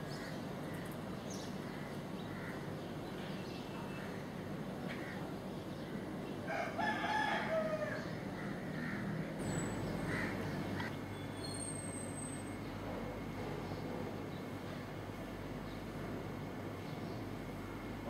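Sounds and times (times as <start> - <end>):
steady background noise: 0.0 - 18.0
rooster crowing: 6.5 - 8.2.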